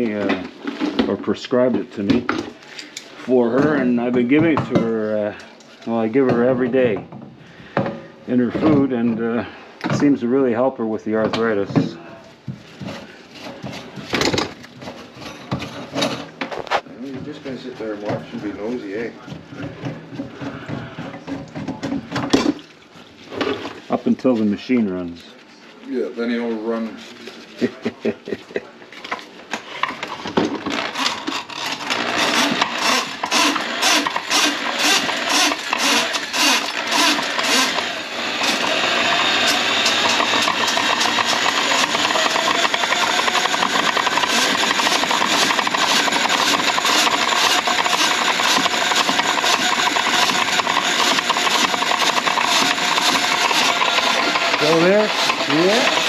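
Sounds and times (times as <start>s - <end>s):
rhythmic clatter of knocks: 30.4s - 56.0s
drain-cleaning machine running: 30.8s - 56.0s.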